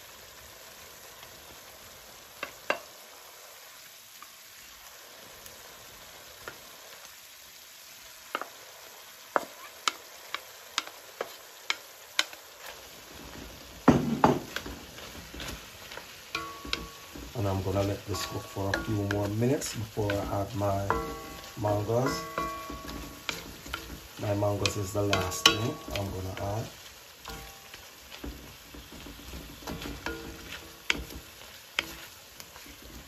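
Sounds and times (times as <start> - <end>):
food sizzling in oil: 0.0 - 33.0
utensil knocking against pan: 13.9 - 14.8, 16.4 - 26.7, 27.3 - 32.1.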